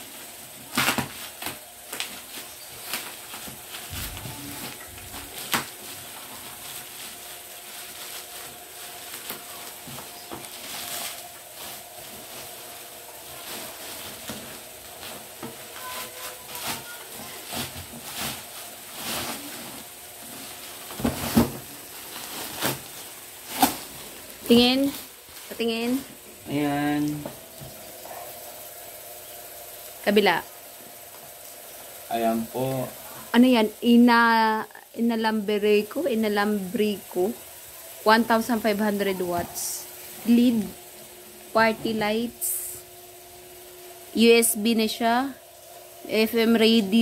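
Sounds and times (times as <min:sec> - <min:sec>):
bubble wrap crinkling: 0:00.0 - 0:47.0
sharp plastic crackles: 0:00.6 - 0:26.0.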